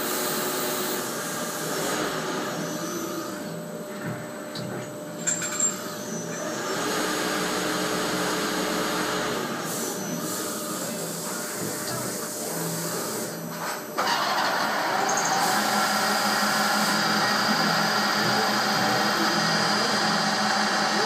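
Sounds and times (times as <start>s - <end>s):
lathe running: 14.0s - 21.0s.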